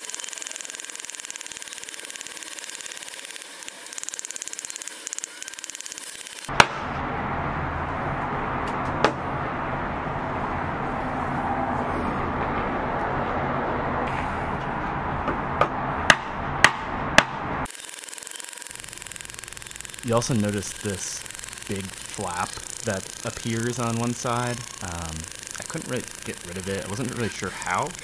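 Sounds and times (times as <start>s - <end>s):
hammer striking foil ball: 6.5s - 6.9s
steady background rush: 16.1s - 28.0s.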